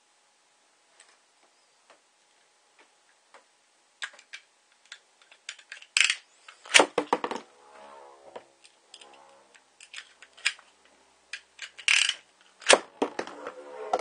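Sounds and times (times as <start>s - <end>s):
spinning top launch rip and clatter: 5.8s - 14.0s.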